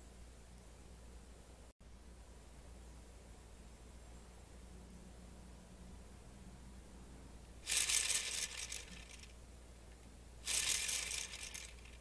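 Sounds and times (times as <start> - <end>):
plastic gears rattling: 7.6 - 9.4, 10.5 - 12.0.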